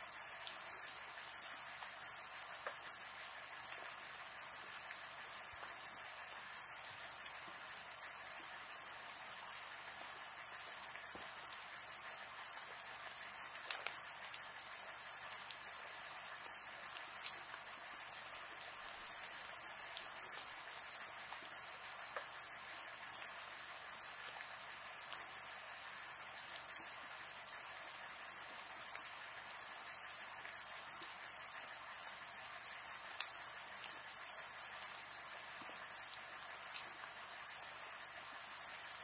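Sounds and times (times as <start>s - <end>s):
insect chirping: 0.0s - 39.0s
rain hiss: 0.0s - 39.0s.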